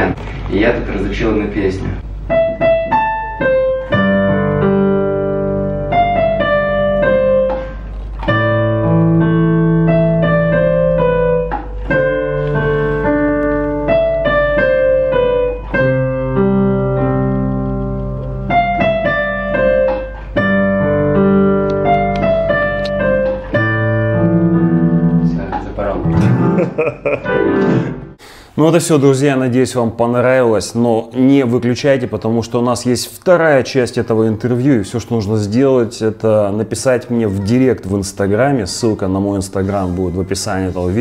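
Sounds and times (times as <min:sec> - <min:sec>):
digital piano melody: 0:02.0 - 0:28.2.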